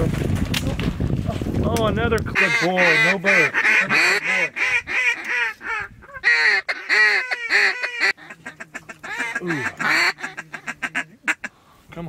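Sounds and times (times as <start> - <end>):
duck call quacks: 2.4 - 11.5.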